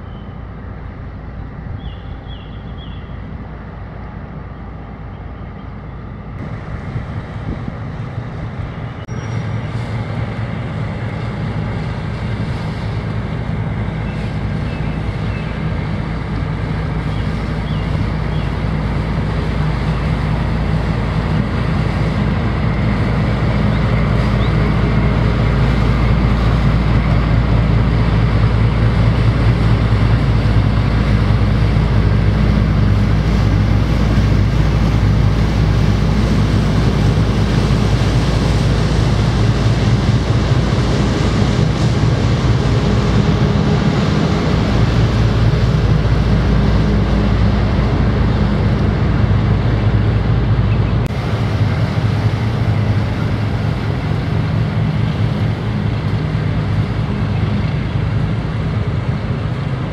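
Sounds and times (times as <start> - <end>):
faint birdsong: 0.0 - 0.5, 1.6 - 3.4, 4.4 - 6.2, 8.6 - 9.9, 13.9 - 15.9, 17.0 - 18.7
ship engines droning: 0.0 - 59.9
water wash: 6.2 - 59.9
wind on microphone: 6.4 - 59.9.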